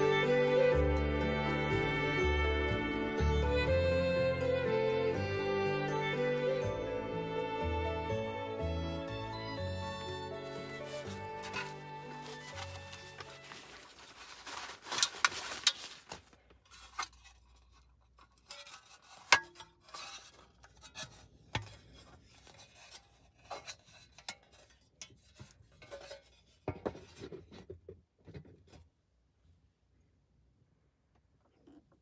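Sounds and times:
rustling scrape: 0:09.8 - 0:27.6
small items clicking and clinking: 0:10.4 - 0:19.5.

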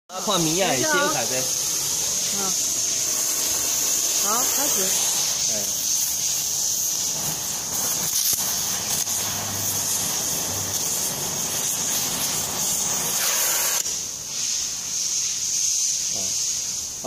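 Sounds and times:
gas torch hissing: 0:00.1 - 0:17.0.

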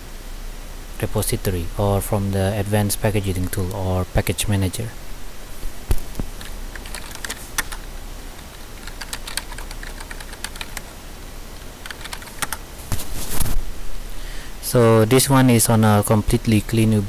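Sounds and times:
computer keyboard typing: 0:06.4 - 0:10.9, 0:11.8 - 0:12.6.

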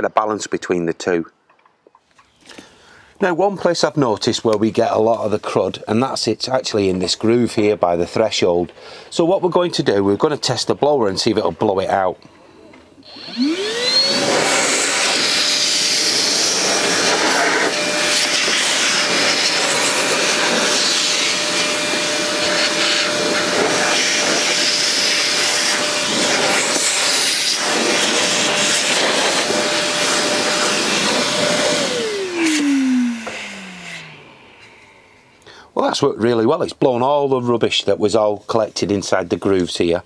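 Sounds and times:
rushing air: 0:13.0 - 0:35.4
vacuum blower motor whine: 0:13.0 - 0:35.5.

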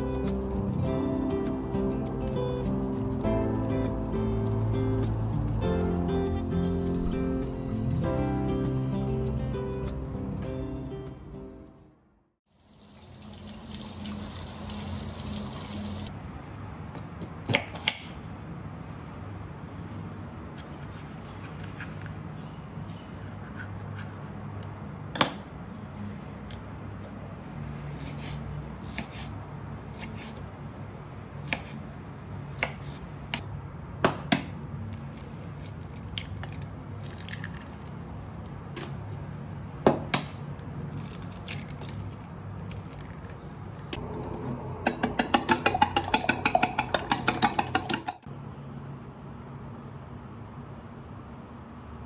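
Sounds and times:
knife slicing pepper: 0:20.6 - 0:22.2, 0:23.2 - 0:24.3, 0:27.9 - 0:30.4, 0:31.4 - 0:33.5
chopsticks beating egg in jug: 0:45.2 - 0:48.2.

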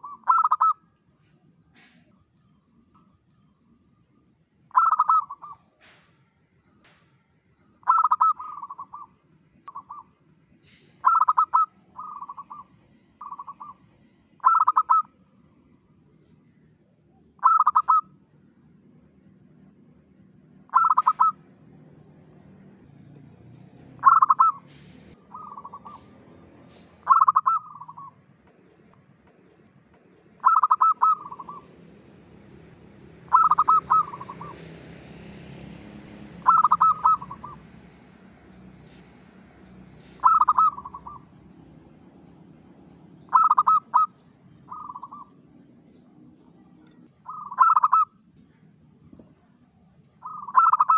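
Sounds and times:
dove cooing song: 0:00.0 - 0:02.1, 0:04.7 - 0:06.0, 0:07.8 - 0:15.2, 0:17.3 - 0:18.2, 0:20.6 - 0:22.5, 0:23.9 - 0:28.2, 0:30.3 - 0:32.6, 0:33.2 - 0:38.9, 0:40.0 - 0:48.6, 0:50.2 - 0:50.9.

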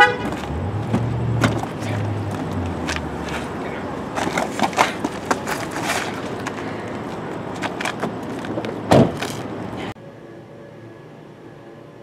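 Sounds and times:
body thumping on pavement: 0:00.2 - 0:06.6, 0:07.5 - 0:09.5
scuffling: 0:00.2 - 0:09.5.

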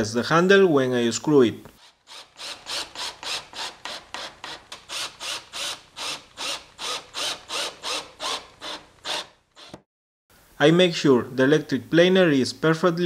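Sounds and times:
cordless drill driving screws: 0:01.8 - 0:09.8.

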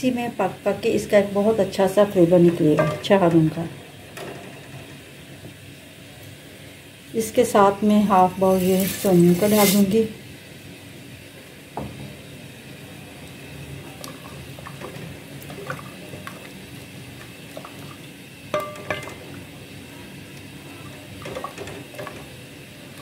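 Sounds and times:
spatula scraping pot: 0:08.5 - 0:10.0
milk bubbling in pot: 0:13.1 - 0:23.0.

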